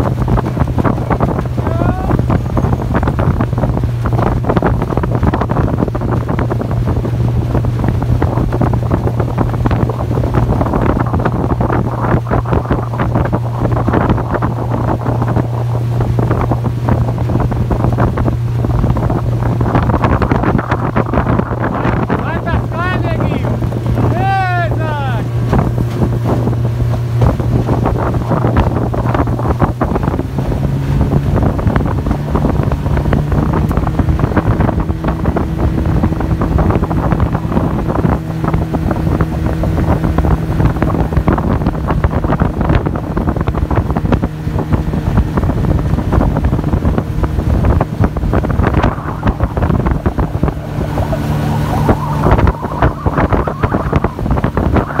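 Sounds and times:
outboard motor drone: 0.0 - 55.0
wind buffeting microphone: 0.0 - 55.0.

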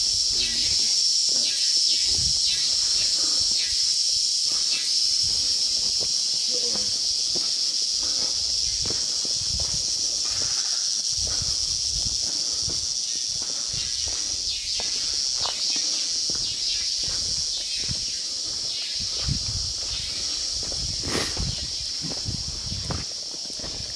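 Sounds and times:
footsteps on dirt trail: 0.0 - 23.9
insects droning: 0.0 - 23.9.

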